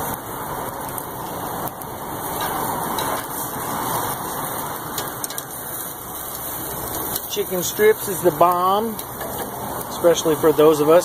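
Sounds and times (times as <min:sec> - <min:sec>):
gas grill burners hissing: 0:00.0 - 0:11.0
meat sizzling on a grill: 0:00.0 - 0:11.0.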